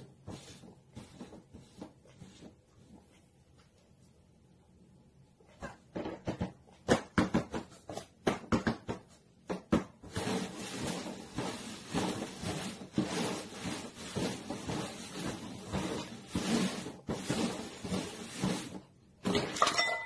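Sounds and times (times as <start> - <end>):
paper cups scraping on cardboard: 0.0 - 2.9, 10.0 - 18.9.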